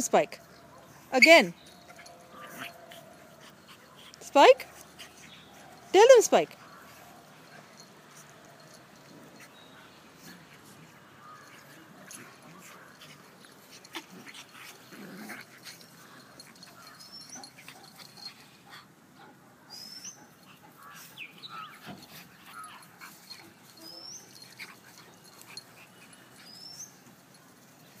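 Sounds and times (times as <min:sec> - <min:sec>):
puppies whining: 0:00.5 - 0:18.6, 0:19.7 - 0:27.4
puppies scuffling and snuffling: 0:20.2 - 0:28.0.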